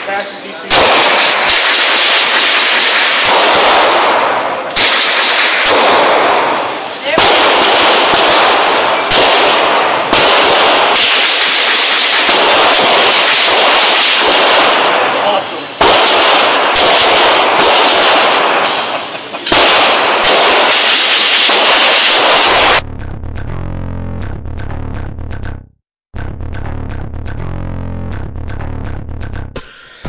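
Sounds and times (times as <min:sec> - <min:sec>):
rapid echoing handgun shots: 0:00.7 - 0:22.8.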